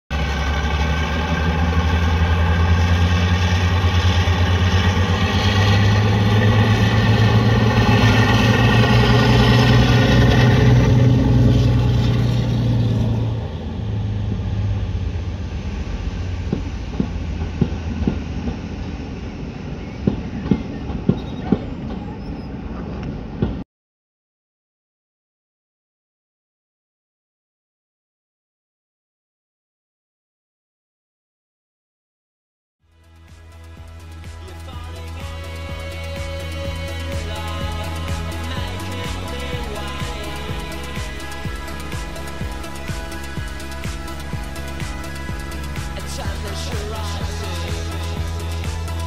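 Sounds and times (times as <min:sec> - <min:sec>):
diesel locomotive engine: 0:00.1 - 0:23.6, 0:32.8 - 0:49.0.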